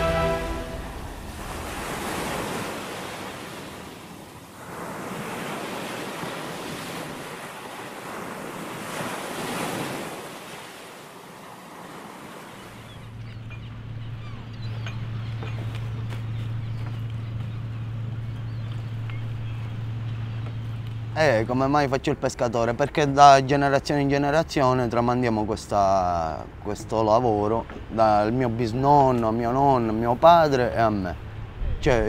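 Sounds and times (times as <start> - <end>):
surf washing over rocks: 0.0 - 12.9
steady low hum: 13.0 - 22.6.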